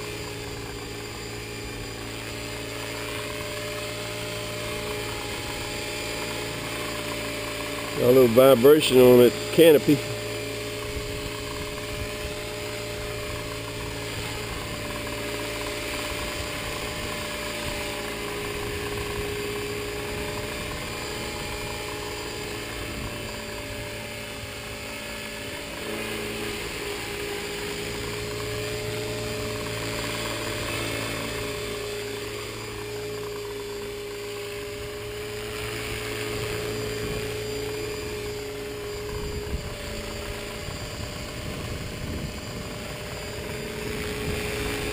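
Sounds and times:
rc helicopter motor whine: 0.0 - 44.9.

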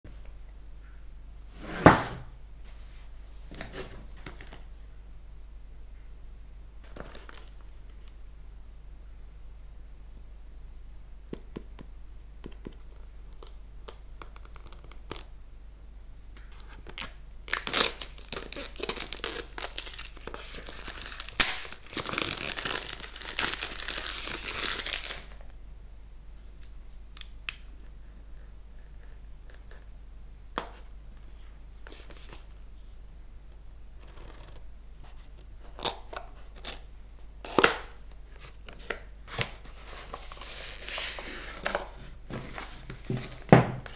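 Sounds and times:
plastic shrink-wrap tearing: 16.6 - 25.4.

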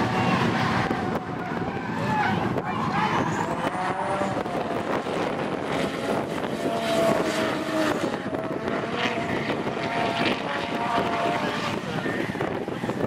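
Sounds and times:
car engines at high revs: 0.0 - 13.0.

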